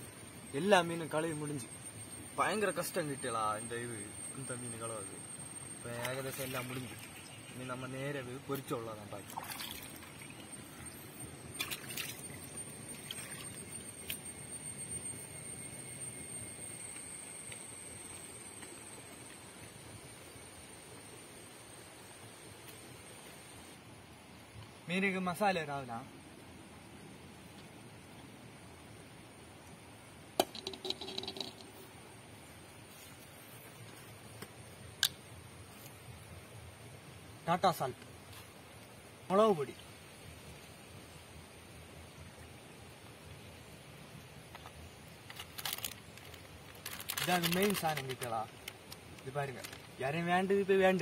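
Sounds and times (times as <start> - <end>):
stream trickling over rocks: 5.8 - 14.5, 41.8 - 51.0.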